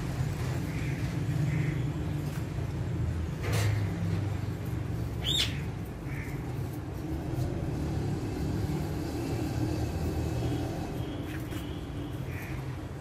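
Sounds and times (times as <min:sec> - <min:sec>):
parakeet squawk: 0:05.2 - 0:06.4.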